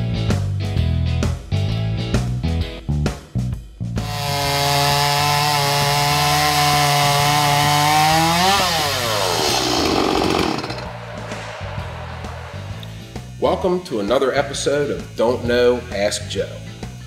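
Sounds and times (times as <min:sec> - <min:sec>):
chainsaw cutting through log: 0:04.0 - 0:10.9.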